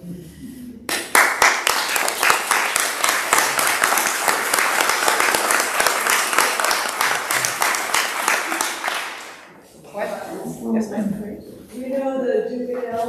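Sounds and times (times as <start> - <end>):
audience applauding: 0.9 - 9.6.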